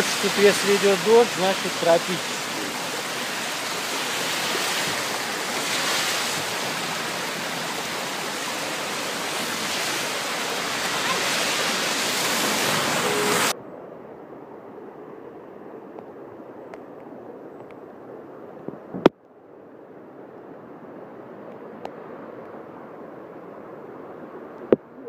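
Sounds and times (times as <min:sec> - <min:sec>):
water rushing along gutter: 0:00.0 - 0:13.5.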